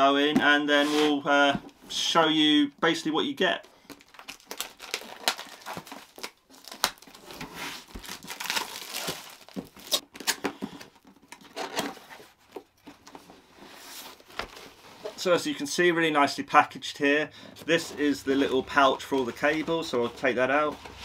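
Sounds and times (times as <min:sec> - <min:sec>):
cardboard tearing: 0:04.0 - 0:10.4.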